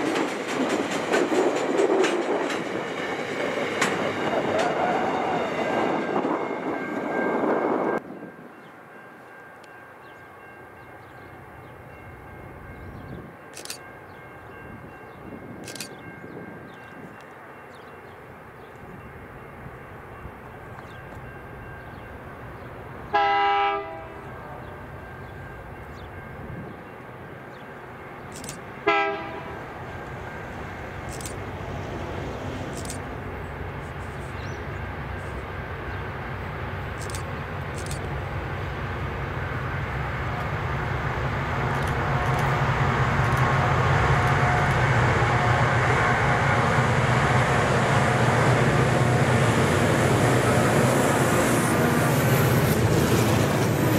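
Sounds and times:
diesel train engine noise: 0.0 - 53.9
train horn blast: 4.4 - 6.6, 23.1 - 24.9, 28.8 - 29.8.

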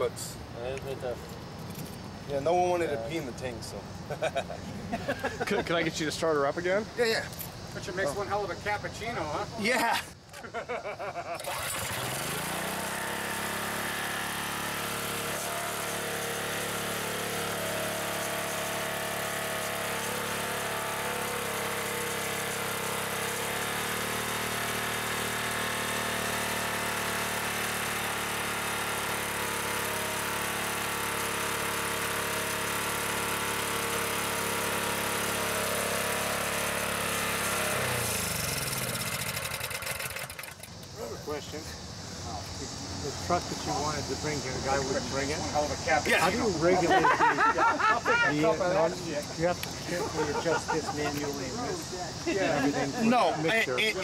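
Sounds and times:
small engine starting and running: 11.3 - 41.4, 43.1 - 54.0.

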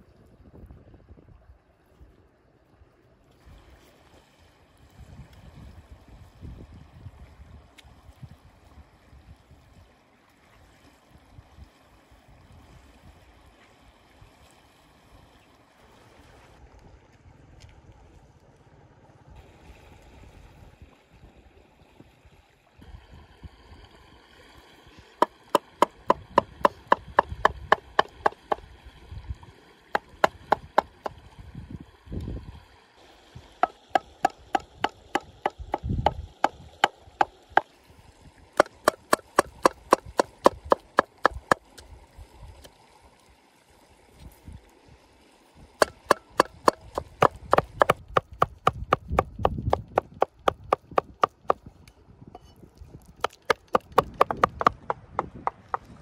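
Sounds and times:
knife chopping on cutting board: 25.6 - 28.6, 38.6 - 41.6, 45.8 - 51.6, 53.2 - 55.8.

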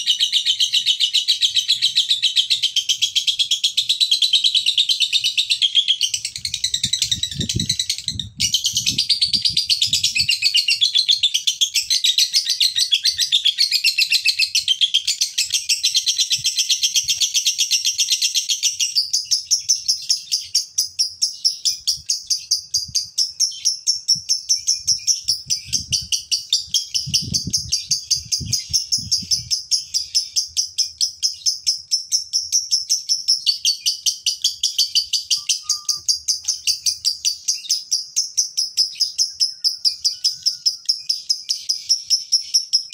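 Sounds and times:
lovebird shrill chattering: 34.8 - 37.7.

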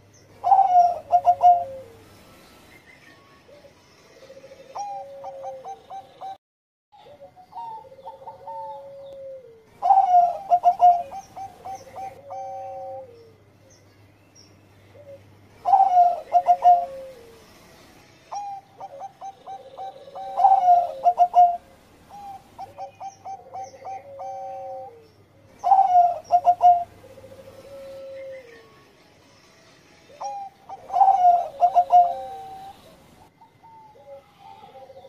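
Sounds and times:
dove cooing: 0.0 - 2.0, 3.5 - 6.4, 7.0 - 13.4, 14.9 - 17.5, 18.3 - 28.7, 30.1 - 35.0
small birds chirping: 9.8 - 17.6, 18.3 - 28.7.

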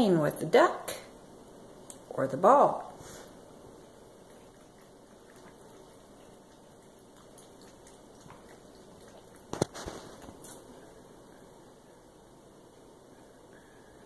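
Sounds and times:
kitten lapping water: 3.3 - 11.5.

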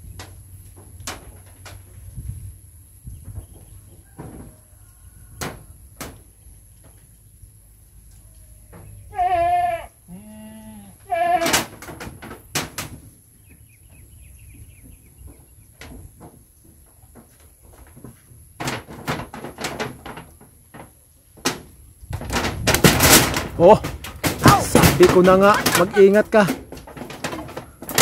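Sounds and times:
goats bleating: 9.1 - 11.6, 24.5 - 26.5
sharp knocks: 18.6 - 28.0.

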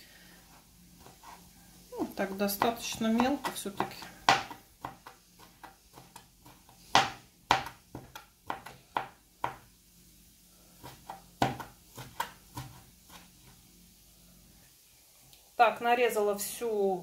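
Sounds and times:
knife chopping on cutting board: 2.5 - 9.7, 10.8 - 13.2.

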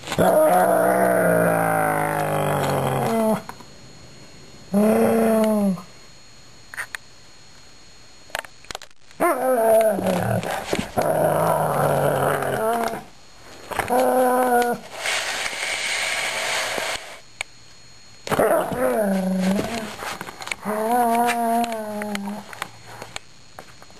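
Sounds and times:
dog growling in play: 0.2 - 3.5, 4.7 - 5.8, 9.2 - 13.1, 20.6 - 22.4.

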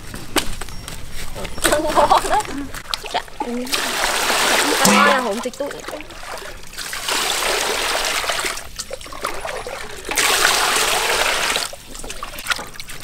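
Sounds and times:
hands rinsing chickens: 1.6 - 13.0
water pouring into metal basin: 2.9 - 12.6.

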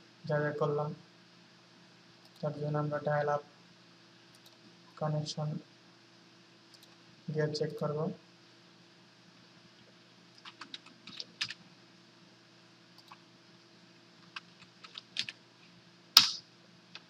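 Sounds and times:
keyboard typing: 10.4 - 11.6, 14.3 - 15.4.

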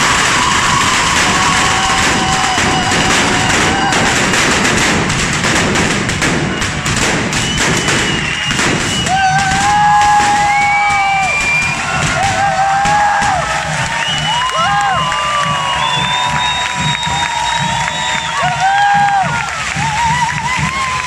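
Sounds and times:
firework bangs and thuds: 0.0 - 21.0
firework fountains hissing: 0.0 - 21.0
shrill whistles: 7.4 - 12.0, 13.8 - 19.0.

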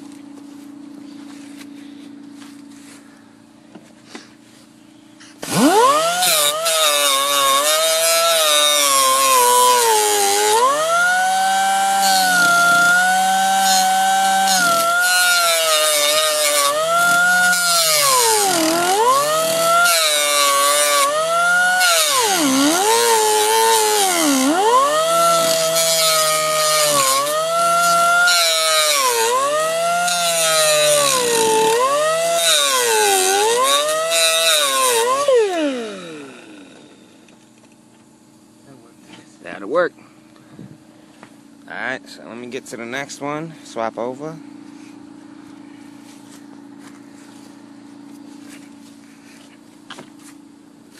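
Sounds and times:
grinder cutting sheet steel: 5.4 - 36.9.

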